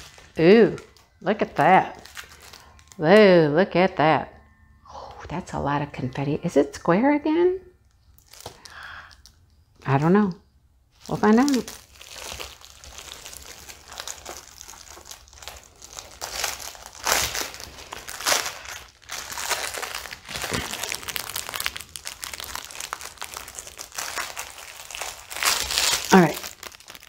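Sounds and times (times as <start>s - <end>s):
plastic packaging crinkling: 0.0s - 3.2s, 7.9s - 9.5s, 11.0s - 27.0s.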